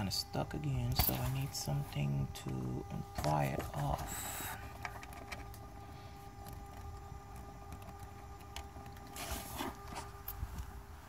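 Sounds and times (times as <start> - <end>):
faint low rumble with hum: 0.0 - 11.0.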